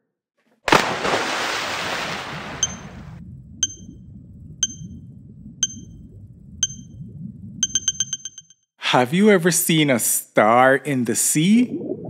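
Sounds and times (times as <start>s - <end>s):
underwater ambience: 2.0s - 8.6s, 11.4s - 12.0s
timer high pings: 2.6s - 3.0s, 3.6s - 4.0s, 4.6s - 5.0s, 5.6s - 6.0s, 6.6s - 7.0s, 7.6s - 8.6s.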